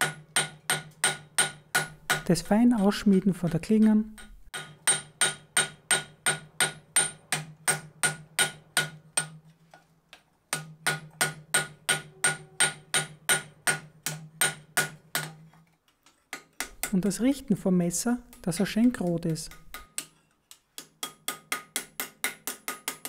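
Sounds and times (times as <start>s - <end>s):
hammer striking steel on anvil: 0.0s - 2.3s, 2.9s - 9.4s, 10.5s - 15.4s, 20.8s - 23.0s.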